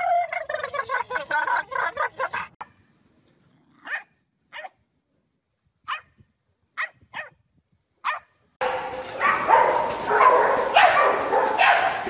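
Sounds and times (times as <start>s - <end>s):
dog warbling vocal noise: 0.0s - 2.6s
dog barking: 3.8s - 4.8s, 5.9s - 6.1s, 6.8s - 7.4s, 8.0s - 12.0s.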